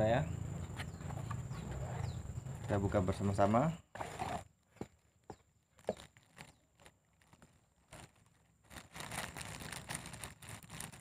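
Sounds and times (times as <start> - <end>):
plastic bag crinkling: 5.7 - 11.0.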